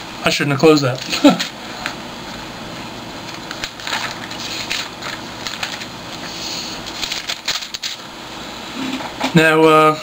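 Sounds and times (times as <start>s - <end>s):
thin pages rustling: 3.3s - 6.3s, 6.9s - 8.0s.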